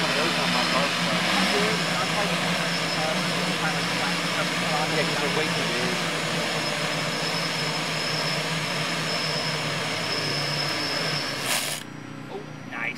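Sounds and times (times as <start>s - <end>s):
drone propellers whining: 0.0s - 12.9s.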